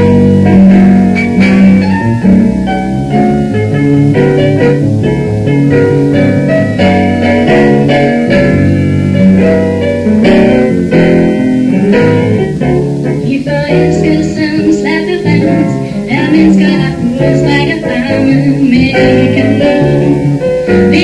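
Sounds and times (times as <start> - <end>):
upright bass plucking: 0.0 - 13.9
piano chords: 0.0 - 21.0.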